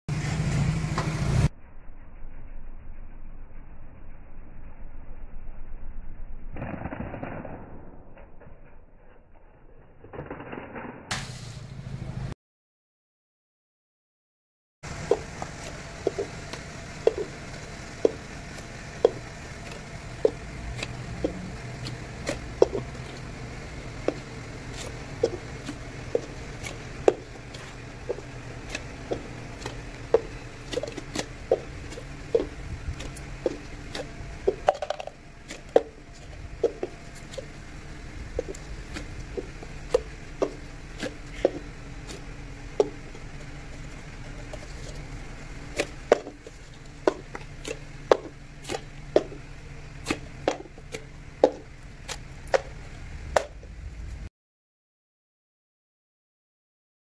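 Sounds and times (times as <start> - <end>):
low background hum: 14.9 - 54.3
plastic cups tapping on bricks: 16.0 - 36.0, 45.8 - 49.4.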